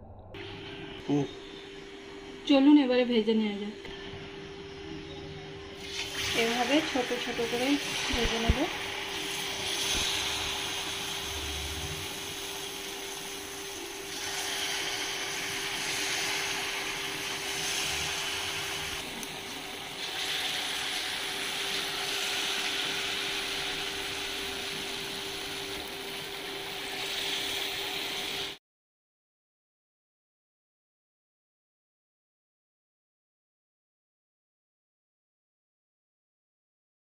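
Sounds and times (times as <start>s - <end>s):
batter deep-frying in oil: 5.8s - 28.6s.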